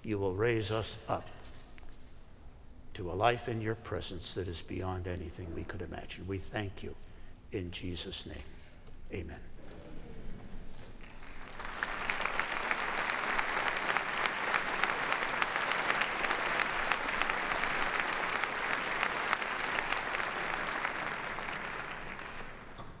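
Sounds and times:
large audience applauding: 11.0 - 23.0.

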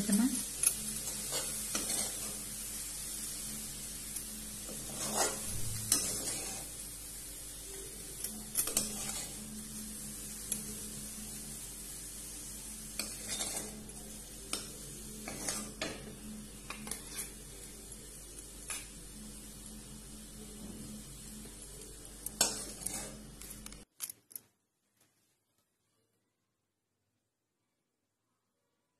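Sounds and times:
spoon scraping metal pan: 1.0 - 2.4, 4.6 - 6.7, 8.6 - 9.5, 13.0 - 13.9, 14.5 - 16.0, 16.7 - 17.4, 22.4 - 23.2.

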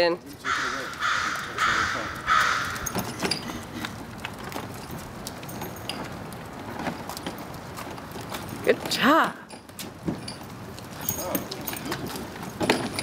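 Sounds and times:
kick scooter rolling on concrete: 0.0 - 13.0
crow cawing: 0.4 - 3.1.

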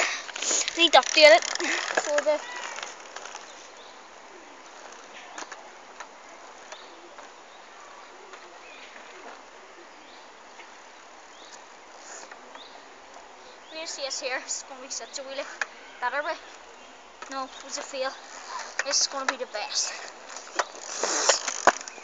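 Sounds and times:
faint clicks: 0.0 - 3.6, 17.2 - 22.0
steady street hiss: 0.0 - 22.0.

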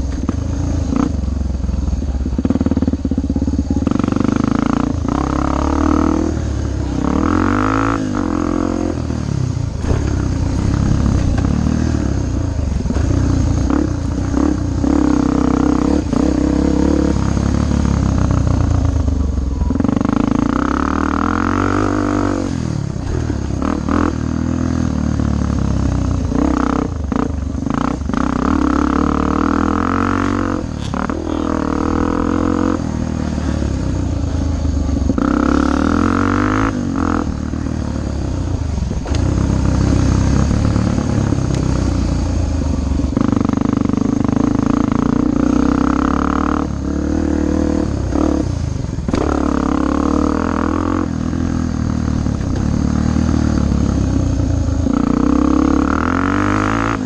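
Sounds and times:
dirt bike engine revving: 2.3 - 18.9, 19.6 - 57.0
knocks and rattles over bumps: 9.6 - 13.5.

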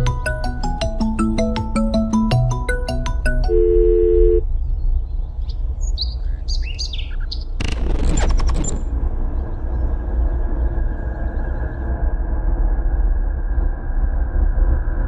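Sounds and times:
marimba phone ringtone: 0.0 - 4.4
short electronic tone: 3.3 - 4.4
birds chirping: 4.4 - 7.6.

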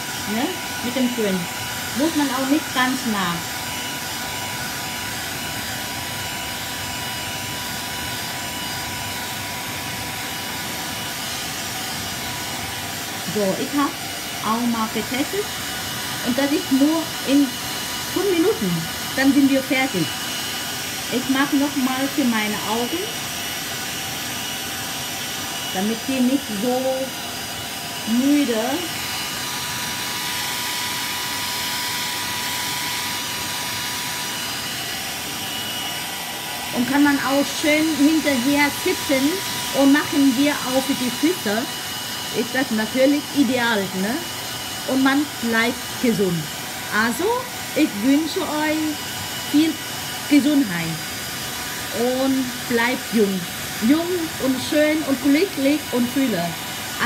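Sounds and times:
hair dryer running: 0.0 - 57.0.

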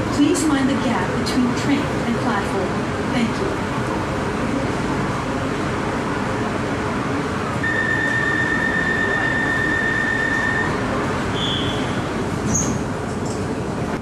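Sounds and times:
train interior rumble and hiss: 0.0 - 14.0
brief higher tone: 7.6 - 12.0
steady high tone: 7.6 - 12.3.

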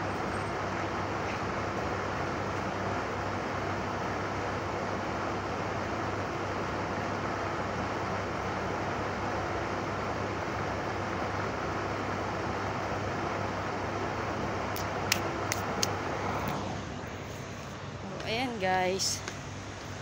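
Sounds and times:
steady rushing noise: 14.7 - 20.0.

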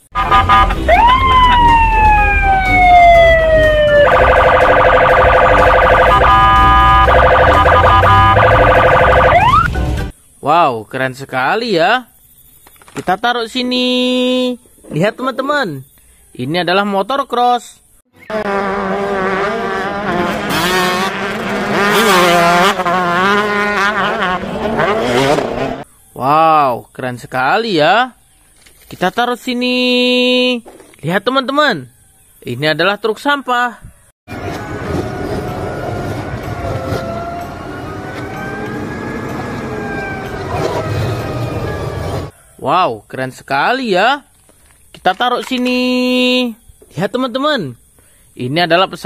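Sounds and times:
police siren chirps and yelp: 0.3 - 9.7, 34.6 - 42.3
dirt bike engines revving: 18.2 - 25.8, 34.3 - 42.3
traffic rumble: 34.3 - 42.4.

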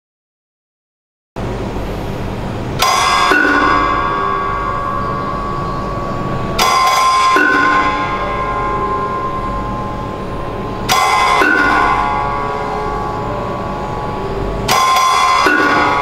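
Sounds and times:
steady low hum: 1.4 - 16.0
struck metal ringing like a bell: 2.8 - 16.0.

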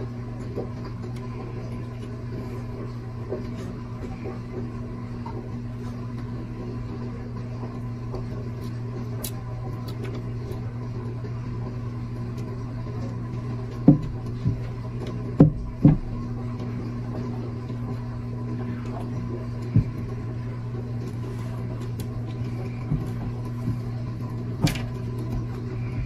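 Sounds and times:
low mechanical hum: 0.0 - 26.0
dull thumps: 13.7 - 16.8, 19.0 - 20.3, 21.1 - 26.0.

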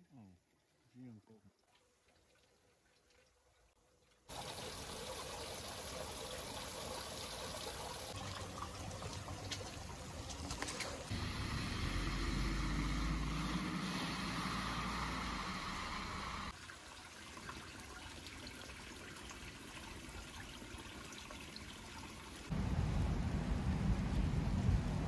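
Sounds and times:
car driving on snow: 11.1 - 16.5
low rumble: 22.5 - 25.0.

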